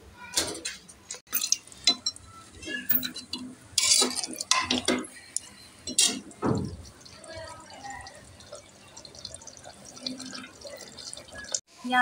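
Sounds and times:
ladle scraping metal pot: 1.4 - 5.3.

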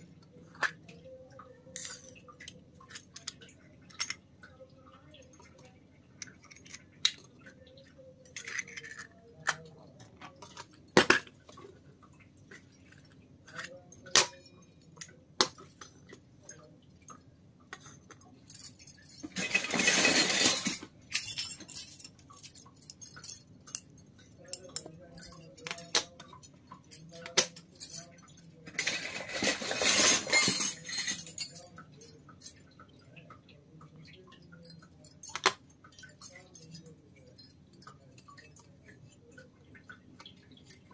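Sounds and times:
small metal utensils clinking: 0.0 - 40.9.

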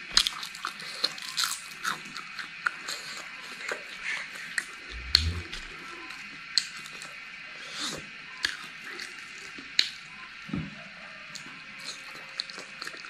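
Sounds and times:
crunching of crispy food: 0.0 - 5.8, 11.1 - 13.0
chewing with lip smacks: 0.2 - 5.8, 11.3 - 13.0.

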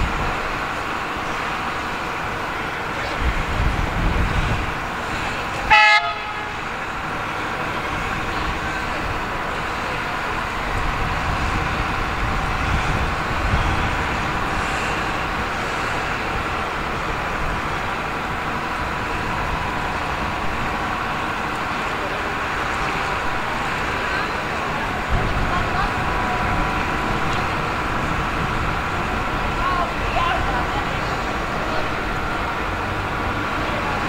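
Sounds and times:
diesel locomotives running: 0.0 - 34.0
diesel locomotive horn toot: 5.2 - 7.0.

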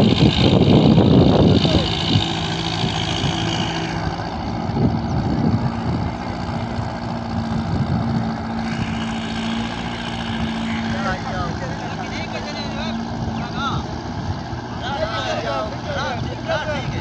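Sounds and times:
tractor diesel engine under load: 0.0 - 17.0.

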